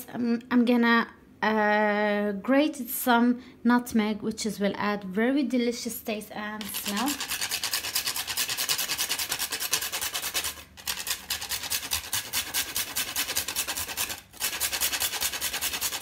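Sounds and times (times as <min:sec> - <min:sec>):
nutmeg rasping on metal grater: 0:06.6 - 0:16.0.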